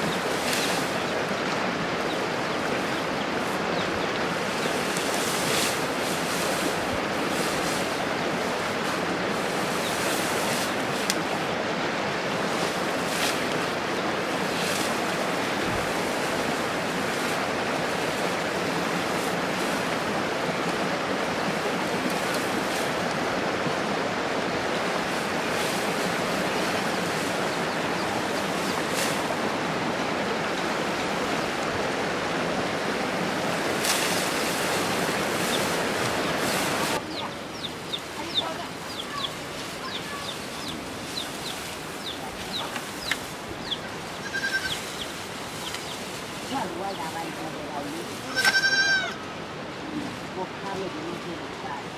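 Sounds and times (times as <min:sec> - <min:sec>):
chickens chirping and clucking: 0:00.0 - 0:06.7, 0:35.4 - 0:47.4
steady rushing noise: 0:00.0 - 0:48.3.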